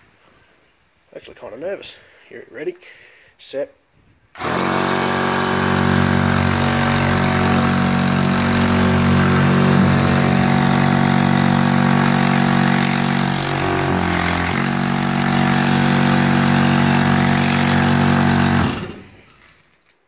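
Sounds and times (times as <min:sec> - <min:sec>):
air compressor running: 0:04.4 - 0:19.6.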